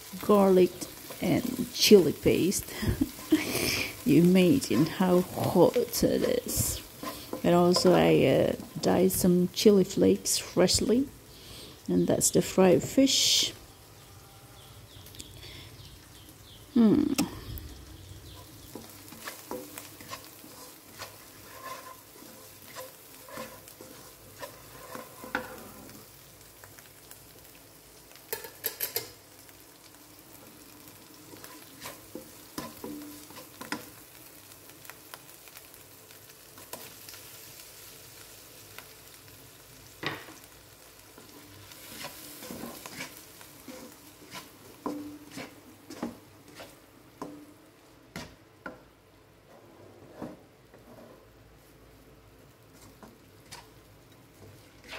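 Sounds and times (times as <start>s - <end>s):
paste sizzling in a wok: 0.0s - 15.1s, 15.7s - 49.4s, 50.3s - 54.9s
spatula scraping a pan: 2.9s - 8.9s, 18.3s - 26.1s, 30.9s - 34.2s, 41.0s - 47.5s, 49.5s - 51.3s, 52.7s - 54.9s.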